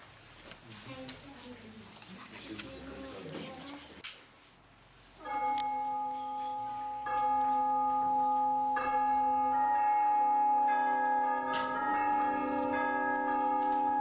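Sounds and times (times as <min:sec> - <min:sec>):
church bells ringing: 0:05.2 - 0:14.0.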